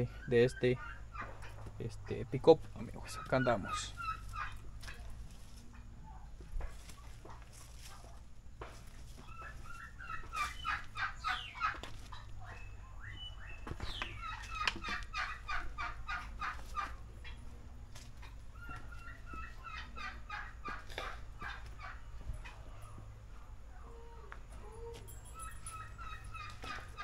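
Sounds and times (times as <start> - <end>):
fowl calling rapid notes: 2.8 - 5.1, 9.2 - 17.5, 18.2 - 22.8.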